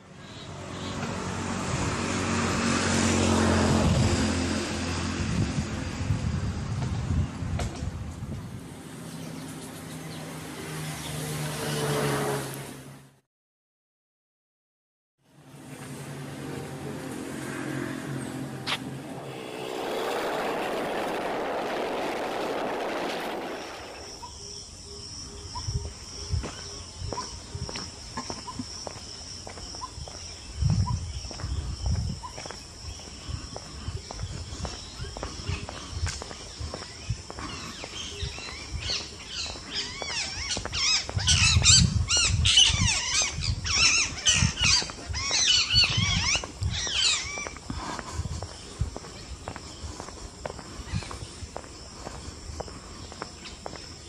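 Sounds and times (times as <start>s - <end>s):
vehicle passing by: 0.4s - 7.5s, 8.5s - 13.2s, 15.4s - 24.2s
low hum: 15.3s - 24.4s
footsteps on paving: 26.4s - 42.3s, 44.7s - 54.0s.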